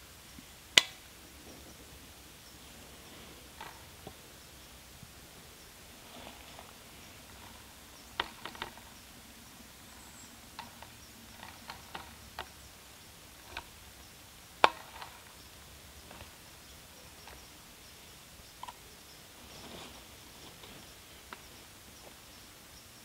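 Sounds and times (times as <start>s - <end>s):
faint steady background noise: 0.0s - 23.0s
sharp clicks and snaps: 0.8s - 1.1s.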